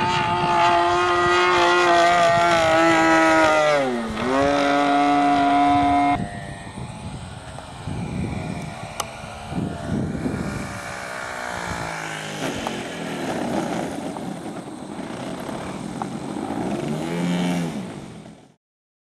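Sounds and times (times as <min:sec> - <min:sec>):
model plane engine: 0:00.0 - 0:18.6.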